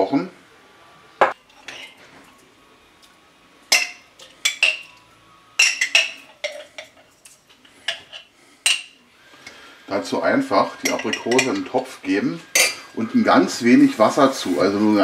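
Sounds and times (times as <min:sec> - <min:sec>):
metal spoon clinking on glass jar: 0:10.8 - 0:11.7, 0:12.6 - 0:12.8.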